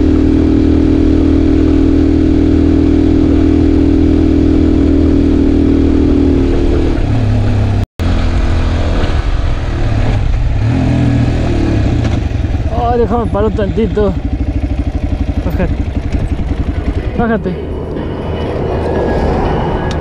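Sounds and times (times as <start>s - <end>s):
motorcycle engine running: 0.0s - 9.6s, 10.2s - 20.0s.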